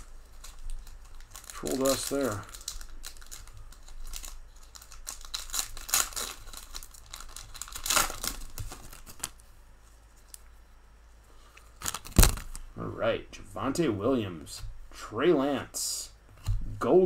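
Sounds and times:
foil wrapper tearing and crinkling: 0:00.0 - 0:09.4, 0:11.8 - 0:12.6.

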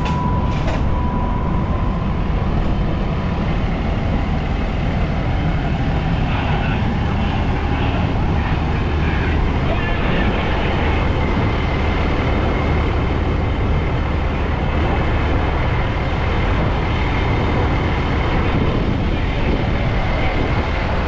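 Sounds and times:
faint high whine: 0:00.0 - 0:11.5
diesel engine rumbling: 0:00.0 - 0:21.0.

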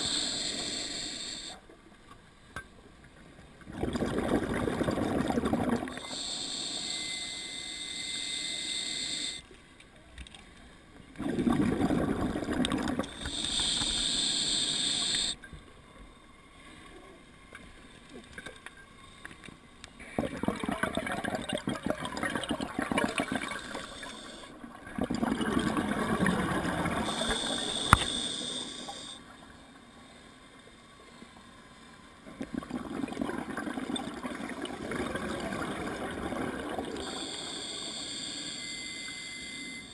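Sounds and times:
regulator hissing inhalations: 0:00.0 - 0:01.6, 0:06.0 - 0:09.4, 0:13.1 - 0:15.4, 0:23.5 - 0:24.6, 0:27.0 - 0:29.2, 0:37.0 - 0:39.9
bubbling exhalations: 0:03.7 - 0:06.0, 0:11.2 - 0:13.2, 0:20.0 - 0:23.8, 0:24.9 - 0:27.0, 0:32.4 - 0:37.1.

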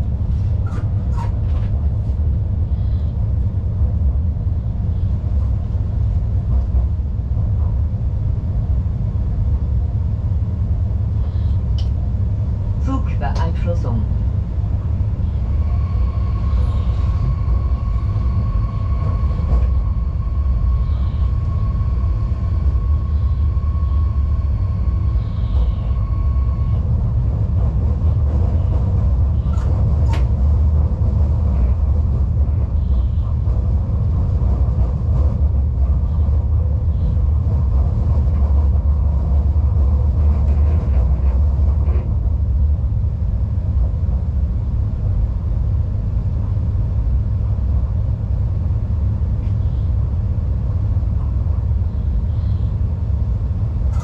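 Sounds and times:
train wheels rumbling on track: 0:00.0 - 0:54.0
high whine: 0:12.8 - 0:27.4.

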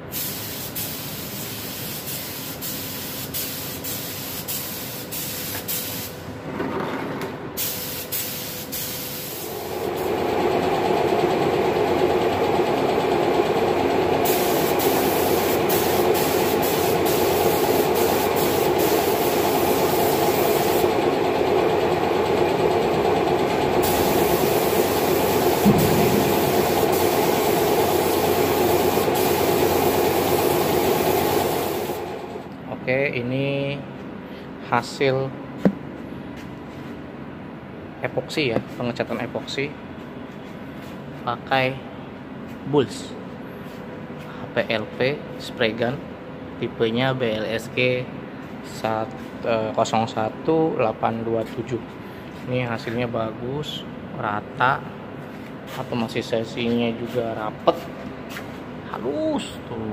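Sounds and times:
air compressor running: 0:00.1 - 0:06.2, 0:07.6 - 0:32.6
spray gun hissing bursts: 0:00.1 - 0:06.2, 0:07.6 - 0:10.4, 0:14.2 - 0:21.0, 0:23.6 - 0:32.2.

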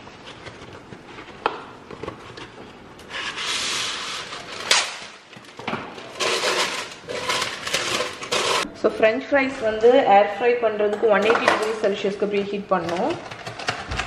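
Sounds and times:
parchment paper crinkling: 0:00.1 - 0:08.7.

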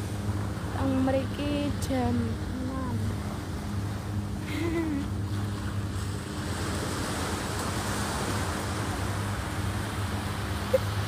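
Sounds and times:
surf washing up a beach: 0:04.4 - 0:11.0.

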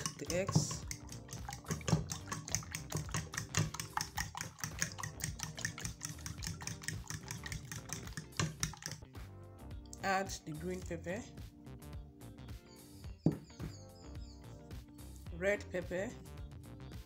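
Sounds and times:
fork whisking eggs in a bowl: 0:00.0 - 0:09.0.

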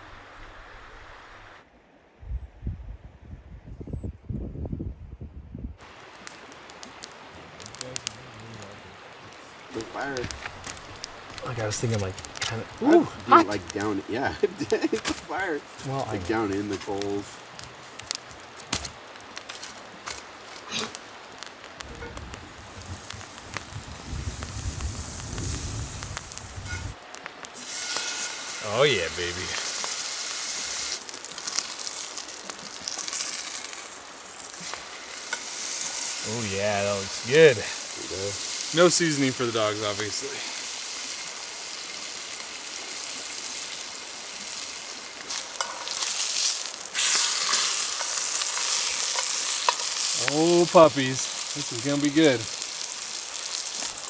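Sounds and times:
butter sizzling in skillet: 0:05.8 - 0:54.0
campfire crackling and popping: 0:05.8 - 0:54.0
metal tongs clicking on pan: 0:48.0 - 0:49.9.

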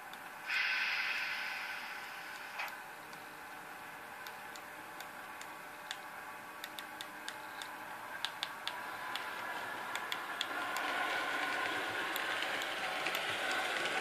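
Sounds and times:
model train wheels clicking: 0:06.6 - 0:14.0
model train motor hum: 0:08.8 - 0:14.0.

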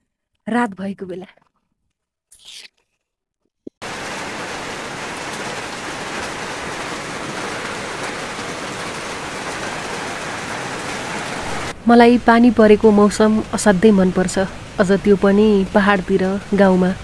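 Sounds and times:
rain on tin roofs: 0:03.8 - 0:17.0.

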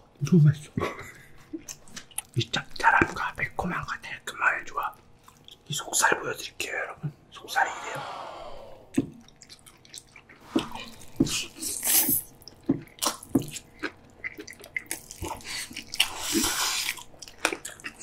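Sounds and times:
wet chewing and lip-smacking: 0:01.5 - 0:03.2, 0:04.9 - 0:05.8, 0:08.9 - 0:18.0
slurping noodles: 0:15.6 - 0:17.0.

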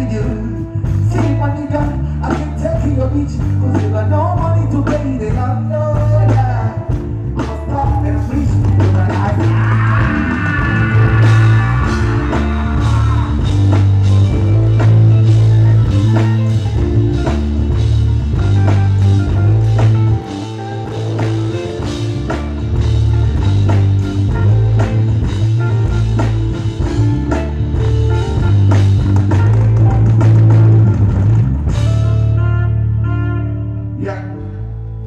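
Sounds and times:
person singing: 0:00.0 - 0:17.5, 0:32.3 - 0:34.9
music with drum beat and bass: 0:00.0 - 0:33.0.

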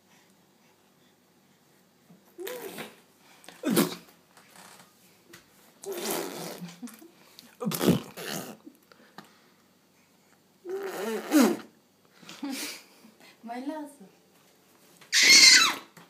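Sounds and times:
baby laughing and squealing: 0:15.1 - 0:15.9.

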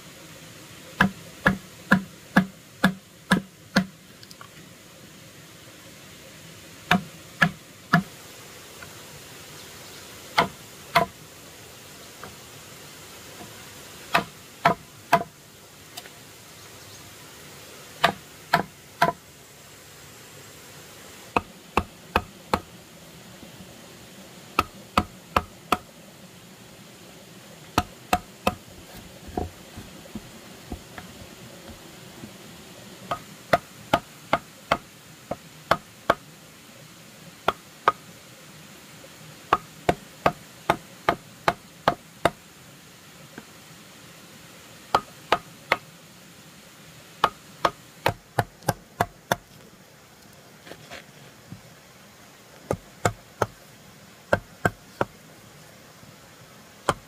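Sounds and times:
tool striking wood: 0:01.0 - 0:04.0, 0:06.9 - 0:08.1, 0:10.4 - 0:11.2, 0:14.1 - 0:15.3, 0:18.0 - 0:19.2, 0:21.3 - 0:22.7, 0:24.6 - 0:25.9, 0:27.8 - 0:31.8, 0:33.1 - 0:36.2, 0:39.5 - 0:42.4, 0:44.9 - 0:45.8, 0:47.2 - 0:49.4.

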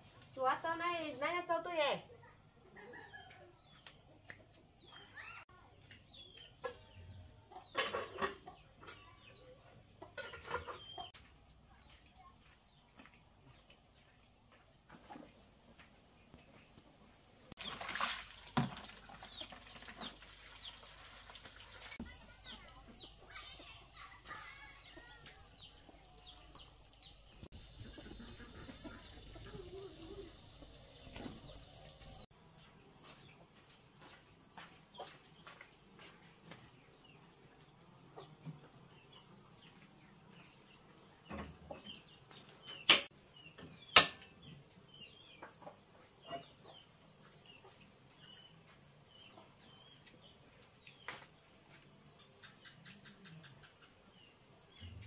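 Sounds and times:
chickens clucking: 0:06.2 - 0:11.2, 0:19.0 - 0:32.3.

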